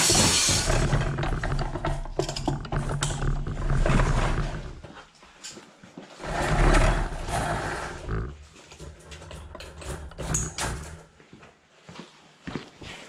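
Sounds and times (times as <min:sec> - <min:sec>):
steel cable rattling in drum: 0:00.0 - 0:04.9, 0:06.2 - 0:11.0.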